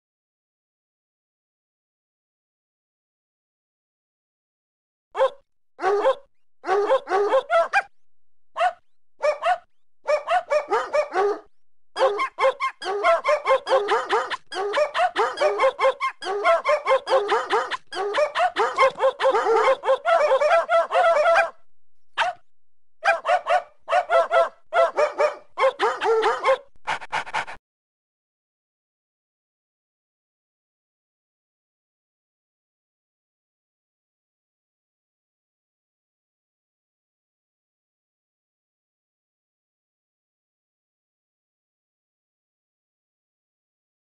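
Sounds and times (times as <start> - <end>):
dog barking and yipping: 5.2 - 7.9, 8.6 - 21.6, 22.2 - 22.4, 23.0 - 27.6.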